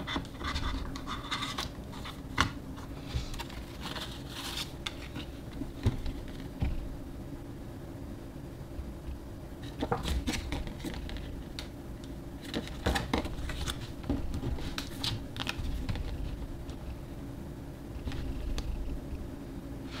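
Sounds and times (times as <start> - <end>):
paper and cardboard rustling: 0.0 - 6.6, 12.4 - 16.8.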